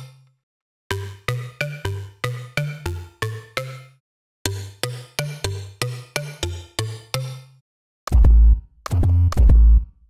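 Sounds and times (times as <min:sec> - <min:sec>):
synth bass notes: 0:08.1 - 0:09.9.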